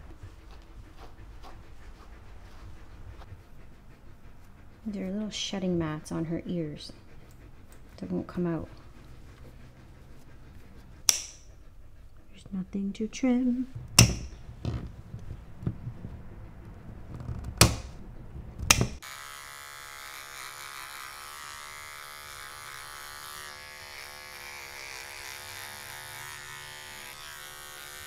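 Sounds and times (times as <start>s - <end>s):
nail clippers clicking: 11.1s - 11.5s, 14.0s - 14.4s, 18.7s - 19.0s
pet clipper buzzing: 11.1s - 11.5s, 13.9s - 14.4s, 18.7s - 28.0s.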